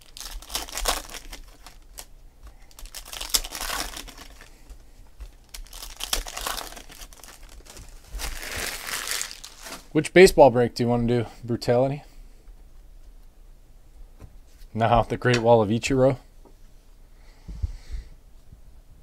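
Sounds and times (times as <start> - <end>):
foil wrappers crinkling: 0.0 - 10.0.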